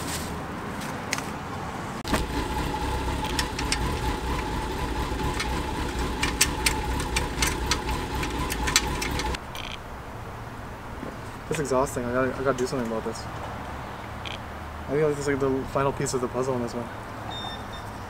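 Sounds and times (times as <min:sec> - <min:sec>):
motor running with whine: 0:02.1 - 0:09.4.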